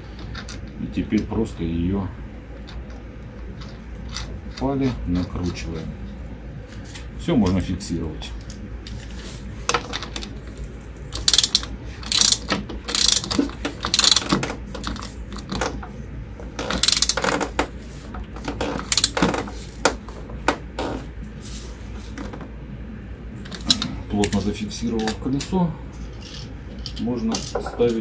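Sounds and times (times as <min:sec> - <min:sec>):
ratchet wrench clicking: 0:11.2 - 0:15.5, 0:16.6 - 0:17.4, 0:18.8 - 0:19.2.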